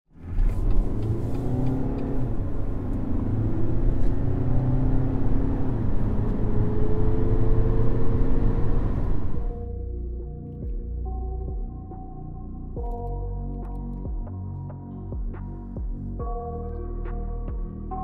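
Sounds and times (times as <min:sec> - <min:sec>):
diesel engine accelerating: 0:00.1 - 0:09.8.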